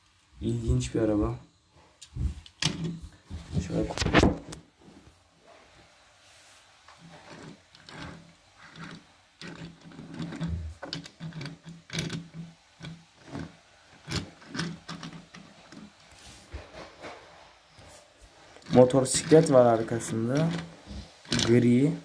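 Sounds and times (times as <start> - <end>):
toy car clicking on wooden desk: 7.2 - 15.9.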